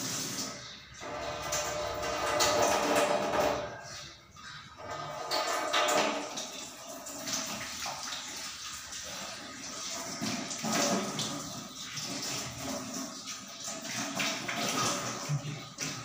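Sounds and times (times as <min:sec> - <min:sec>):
tap water splashing in sink: 0:04.9 - 0:16.0.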